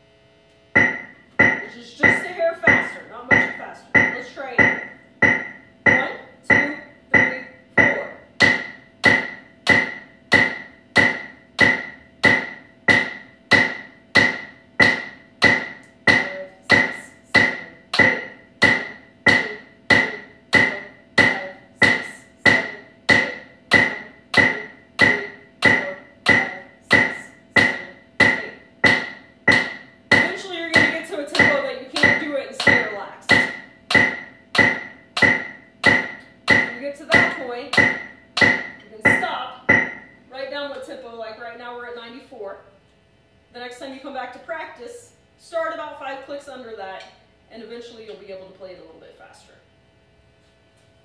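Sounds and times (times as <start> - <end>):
drumstick strokes: 0.8 - 40.1.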